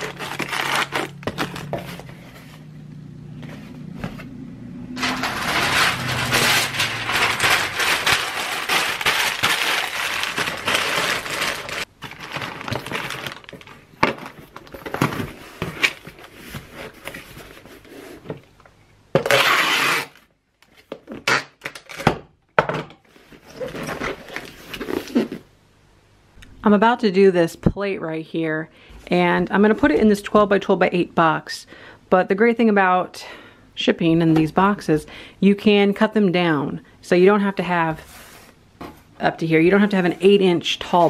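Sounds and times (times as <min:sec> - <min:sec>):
bubble wrap crinkling: 0:00.0 - 0:02.1, 0:05.0 - 0:17.8.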